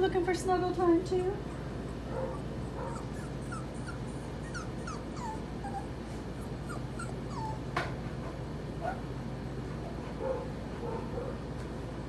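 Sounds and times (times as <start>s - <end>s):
puppies whimpering: 1.1s - 7.7s.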